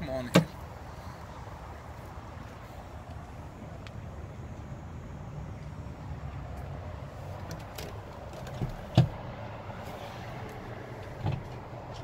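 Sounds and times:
knocks and creaks in truck cab: 0:07.4 - 0:09.2, 0:10.4 - 0:12.0.

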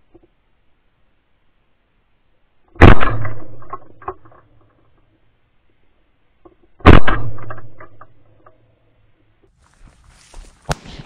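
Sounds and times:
shotgun shots with echo: 0:02.8 - 0:03.8, 0:06.8 - 0:07.9.

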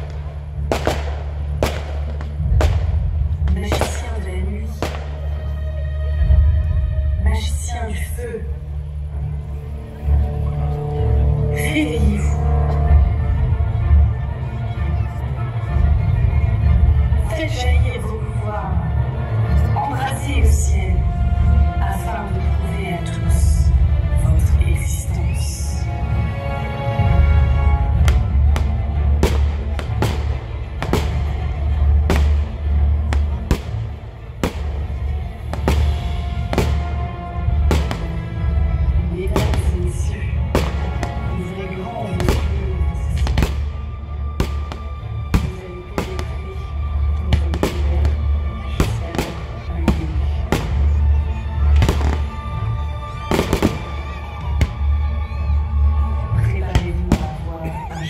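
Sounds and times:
fireworks bangs: 0:00.0 - 0:05.4, 0:27.9 - 0:38.4, 0:51.7 - 0:52.6, 0:53.2 - 0:54.8.

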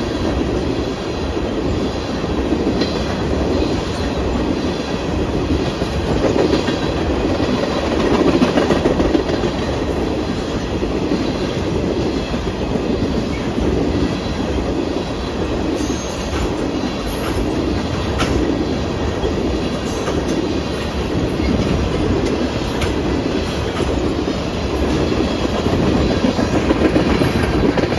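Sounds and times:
freight train rumbling past: 0:00.0 - 0:27.9
wheels clacking over rail joints: 0:05.5 - 0:11.4, 0:15.8 - 0:27.9.

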